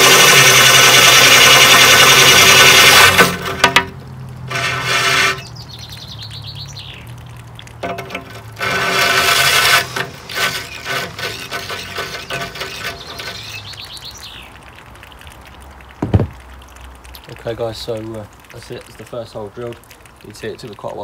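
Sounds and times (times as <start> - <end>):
drill grinding through glass: 0.0 - 3.8, 4.5 - 5.5, 7.9 - 13.6
bird trilling: 10.5 - 14.5.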